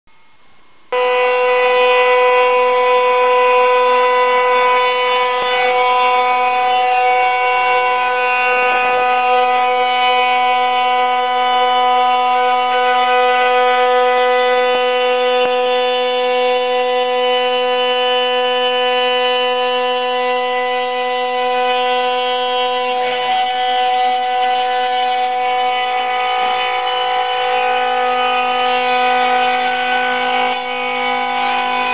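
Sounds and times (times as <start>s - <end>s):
router spindle whine milling wood: 0.9s - 31.9s.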